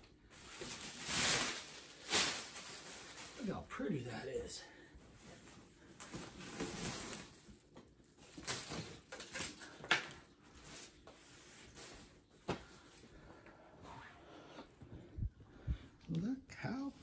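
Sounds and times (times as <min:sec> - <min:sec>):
plastic wrap crinkling: 0:00.0 - 0:04.2, 0:05.9 - 0:12.3.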